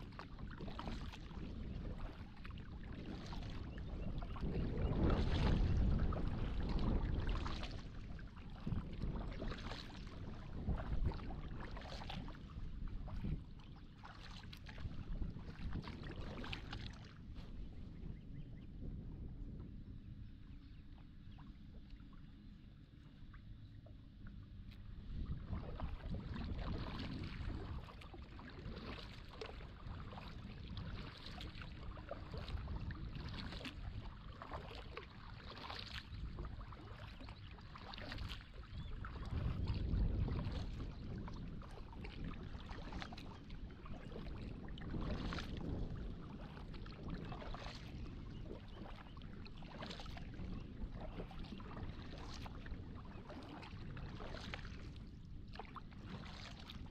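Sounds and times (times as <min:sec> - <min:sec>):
paddle strokes splashing: 0:00.0 - 0:18.0, 0:24.2 - 0:56.9.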